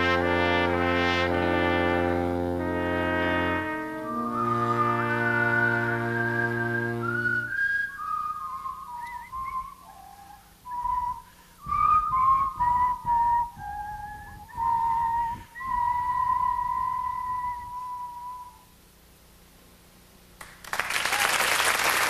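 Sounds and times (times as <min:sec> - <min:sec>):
brass chord: 0:00.0 - 0:07.5
soft band accompaniment: 0:00.0 - 0:07.6
person whistling a melody: 0:04.0 - 0:18.7.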